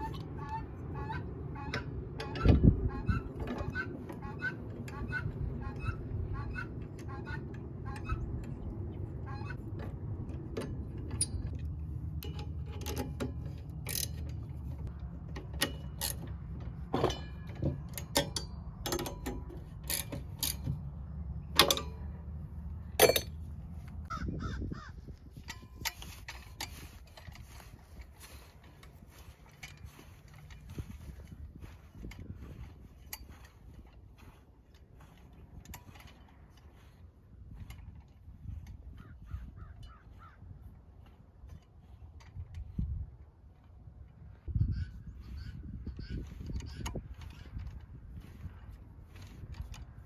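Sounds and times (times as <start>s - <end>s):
metal tines clinking against frame: 9.5s - 24.1s, 25.3s - 34.2s.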